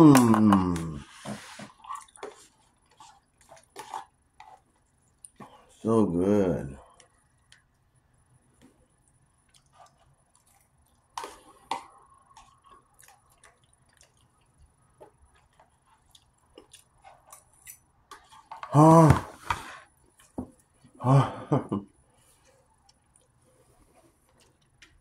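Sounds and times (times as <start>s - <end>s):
person humming mmm: 0.0s - 1.1s, 18.7s - 19.4s
chewing and lip smacking: 8.9s - 17.9s.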